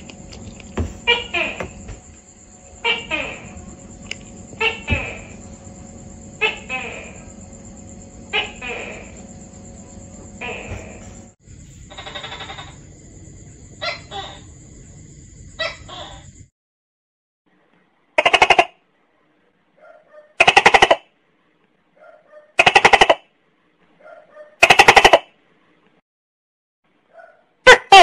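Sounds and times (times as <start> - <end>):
gecko rasping calls: 0.0 - 11.3, 11.9 - 12.8.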